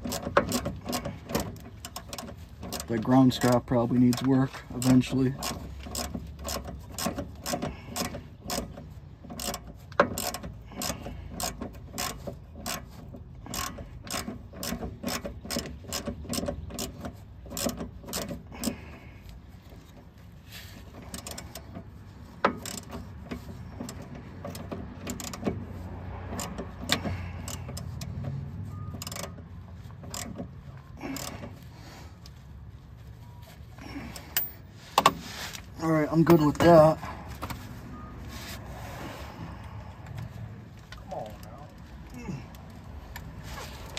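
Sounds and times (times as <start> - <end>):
hand ratchet clicking: 0.0 - 18.8, 21.0 - 25.6, 26.3 - 28.3, 29.0 - 31.7.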